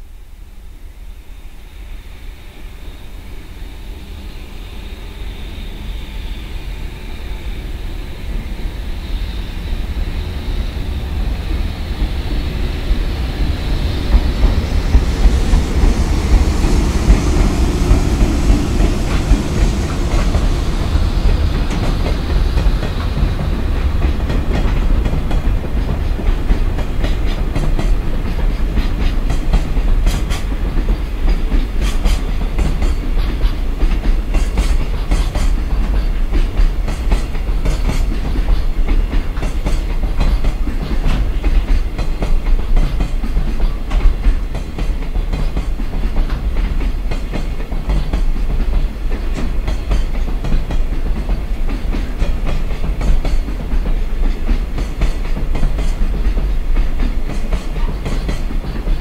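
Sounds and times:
locomotive rumble: 0:06.4 - 0:59.0
wheels clacking over rail joints: 0:19.1 - 0:59.0.

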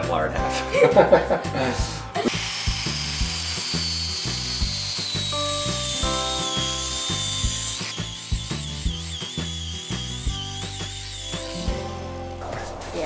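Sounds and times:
background music with steady beat: 0:00.0 - 0:13.0
angle grinder cutting: 0:02.2 - 0:12.4.

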